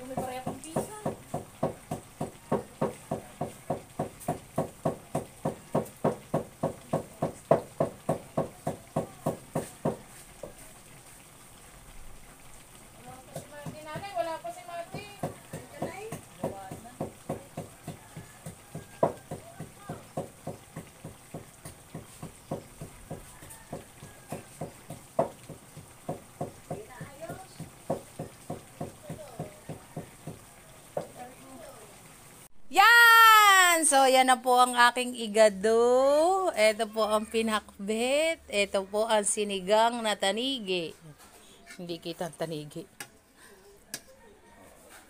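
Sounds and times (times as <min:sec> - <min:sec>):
rhythmic knocking of a kitchen utensil: 0:00.0 - 0:10.6, 0:13.1 - 0:31.2.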